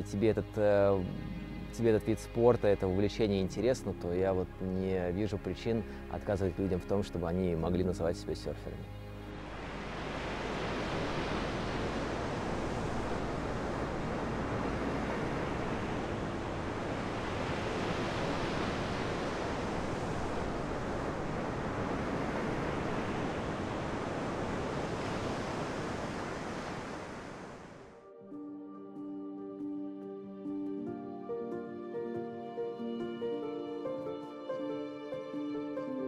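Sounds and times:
waves breaking on beach: 0:09.2 - 0:27.9.

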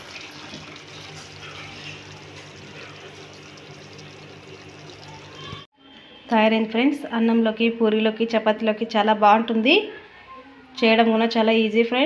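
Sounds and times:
curry sizzling in a pan: 0:00.0 - 0:05.6.

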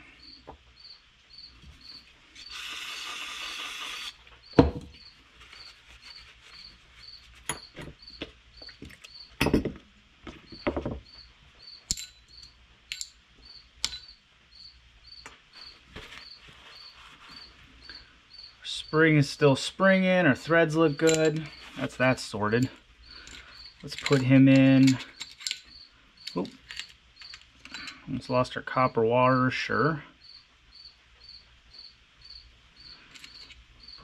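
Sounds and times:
faint cricket-like chirp: 0:00.0 - 0:09.6, 0:10.4 - 0:19.8, 0:20.5 - 0:28.4, 0:29.8 - 0:34.0
metal parts clicking: 0:11.8 - 0:13.2, 0:21.0 - 0:21.6, 0:22.6 - 0:28.0, 0:33.1 - 0:33.6.

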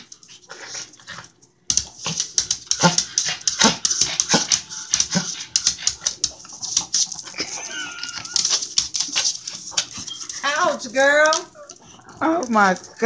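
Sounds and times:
paws clicking on tile floor: 0:00.0 - 0:13.0
dog whining: 0:07.2 - 0:12.2.

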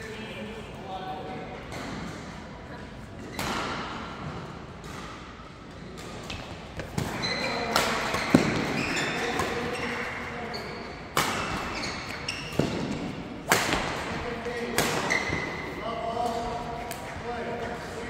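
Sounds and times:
court shoes squeaking: 0:02.9 - 0:17.3
rackets striking shuttlecock: 0:11.1 - 0:17.2.

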